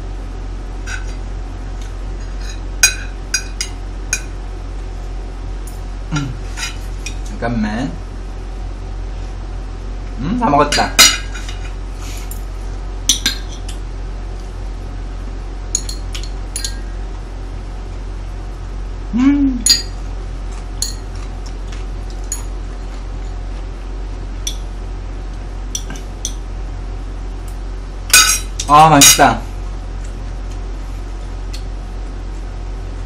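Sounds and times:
steady low hum: 0:00.0 - 0:33.0
person humming: 0:06.1 - 0:06.4, 0:19.1 - 0:19.7.

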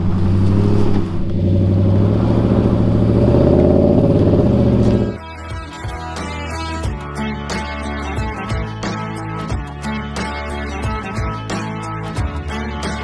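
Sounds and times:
vehicle engine running: 0:00.0 - 0:05.2.

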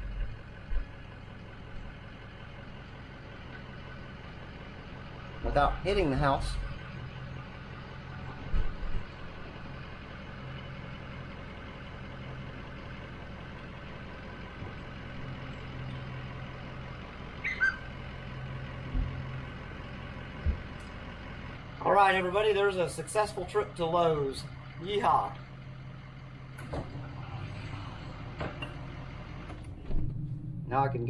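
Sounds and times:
bus engine running: 0:00.0 - 0:31.0
brief squeak: 0:17.4 - 0:17.9
dull thumps: 0:20.4 - 0:20.7.

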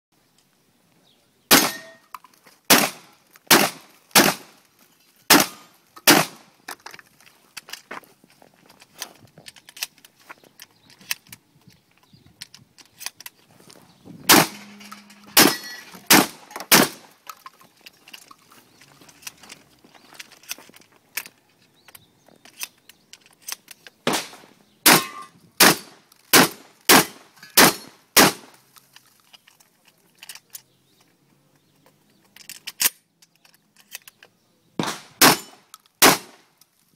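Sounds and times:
shotgun shots: 0:01.5 - 0:02.0, 0:02.7 - 0:04.6, 0:05.3 - 0:06.5, 0:14.3 - 0:14.7, 0:15.3 - 0:17.1, 0:24.0 - 0:28.6, 0:34.8 - 0:36.4.

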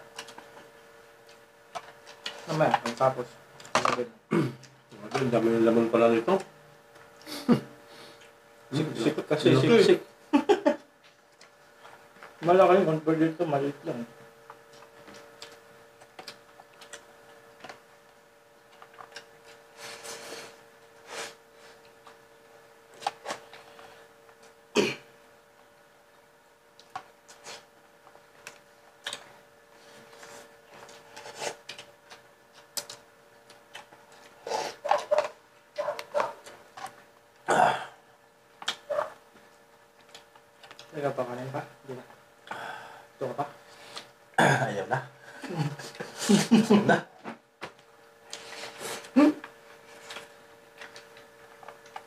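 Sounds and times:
steady hum: 0:00.0 - 0:52.0
throaty vocal sounds: 0:37.4 - 0:38.0, 0:44.4 - 0:44.8.

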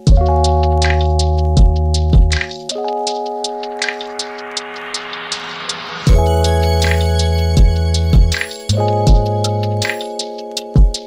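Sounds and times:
keyboard chords: 0:00.0 - 0:11.0
kick drum thumps: 0:00.1 - 0:00.3, 0:01.6 - 0:02.5, 0:06.1 - 0:06.4, 0:07.6 - 0:08.4, 0:09.1 - 0:09.4, 0:10.8 - 0:11.0.

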